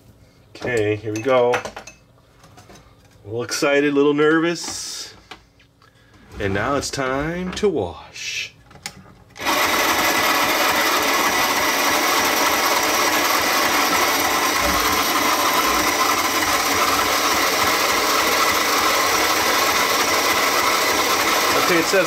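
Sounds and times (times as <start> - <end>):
toy washing machine motor running: 9.4 - 22.0.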